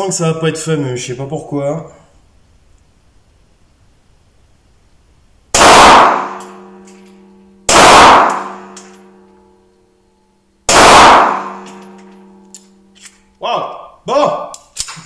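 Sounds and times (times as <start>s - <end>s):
pistol shots echoing: 5.5s - 9.3s, 10.7s - 12.9s.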